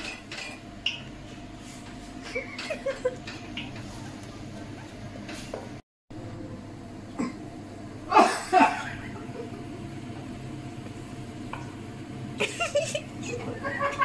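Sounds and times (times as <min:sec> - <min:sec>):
person coughing hard: 0:08.1 - 0:09.0.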